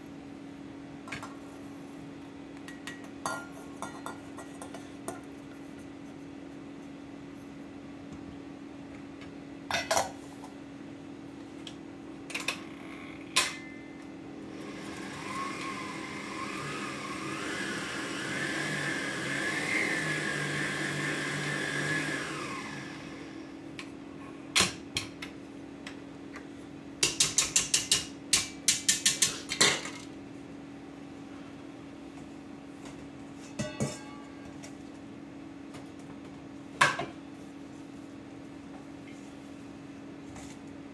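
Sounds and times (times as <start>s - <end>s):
stand mixer motor whining: 14.5s - 23.5s
spatula clinking on steel bowl: 33.6s - 34.4s.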